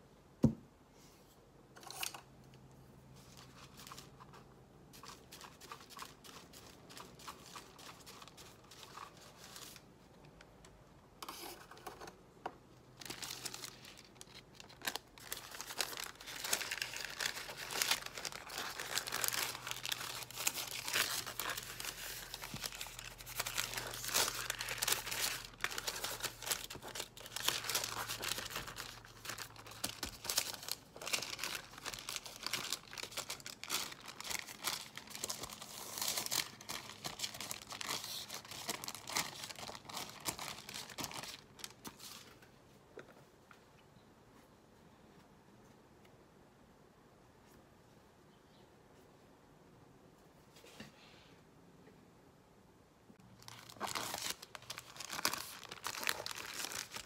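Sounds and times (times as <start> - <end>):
thin paper rustling and crinkling: 3.2 - 9.9, 13.0 - 42.5, 53.4 - 57.0.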